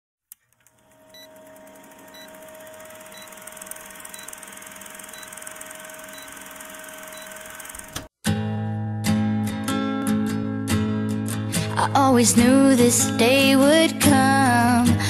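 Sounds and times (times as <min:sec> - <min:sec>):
film projector clatter: 0:00.4 - 0:08.1
short beeps: 0:07.1 - 0:07.5.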